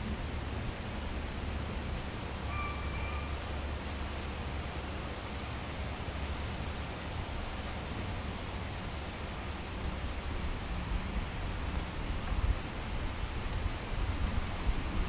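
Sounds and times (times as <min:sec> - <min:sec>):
leaves rustling in wind: 0:00.0 - 0:15.0
faint whistled note: 0:02.5 - 0:03.4
wind buffeting microphone: 0:09.7 - 0:15.0.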